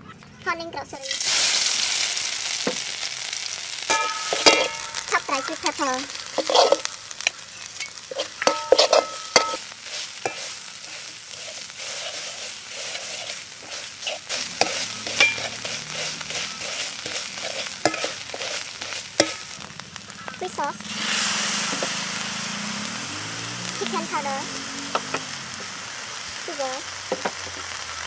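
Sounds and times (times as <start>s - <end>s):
chili frying in oil sizzling: 0.5s - 28.0s
metal spatula scraping wok: 3.9s - 22.5s.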